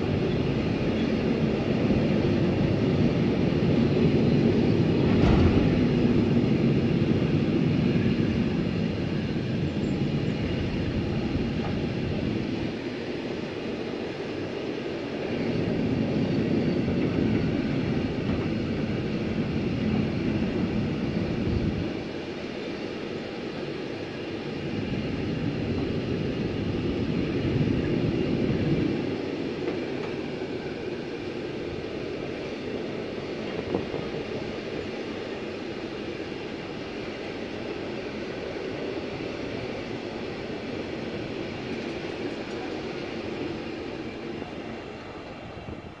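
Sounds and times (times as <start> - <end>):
wheels rumbling and hissing on rail: 0.0 - 46.0.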